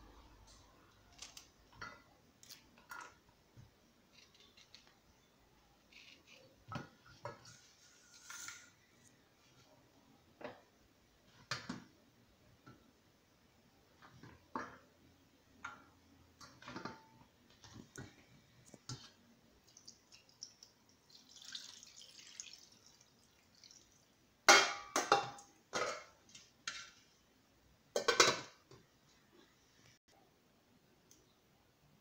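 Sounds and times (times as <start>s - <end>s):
water pouring: 19.6s - 24.1s
metal cookware clanking: 24.5s - 27.0s, 28.0s - 28.6s.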